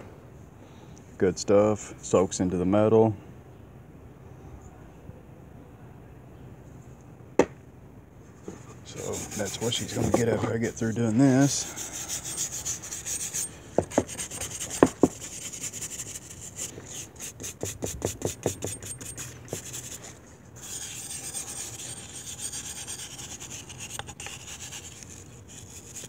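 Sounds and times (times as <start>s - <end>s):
sharp knocks: 7.4s - 7.6s
wire brush scrubbing metal: 8.9s - 26.0s.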